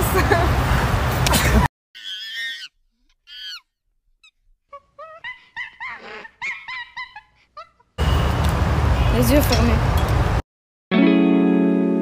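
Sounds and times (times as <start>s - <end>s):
person imitating monkey hoots: 3.3s - 7.9s.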